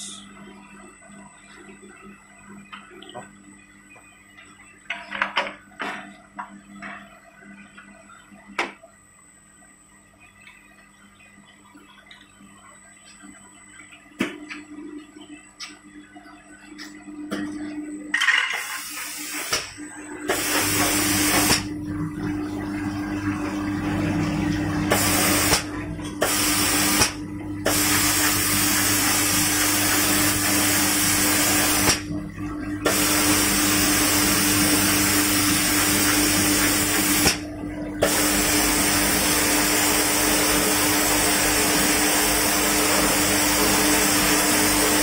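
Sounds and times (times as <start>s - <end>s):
machine hum: 0.0s - 45.0s
water running: 20.2s - 45.0s.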